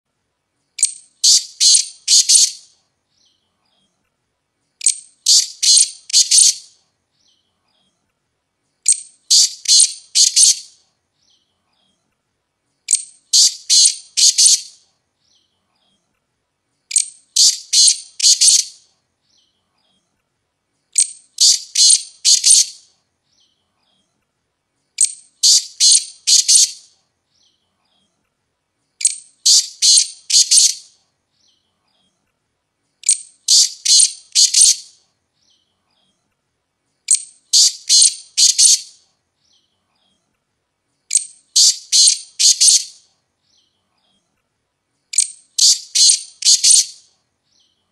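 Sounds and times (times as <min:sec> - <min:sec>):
francolin calling: 0:00.8 - 0:03.4, 0:04.8 - 0:07.4, 0:08.8 - 0:11.4, 0:12.9 - 0:15.4, 0:16.9 - 0:19.5, 0:20.9 - 0:23.5, 0:25.0 - 0:27.0, 0:29.0 - 0:31.0, 0:33.0 - 0:35.0, 0:37.1 - 0:39.0, 0:41.1 - 0:43.1, 0:45.1 - 0:47.1.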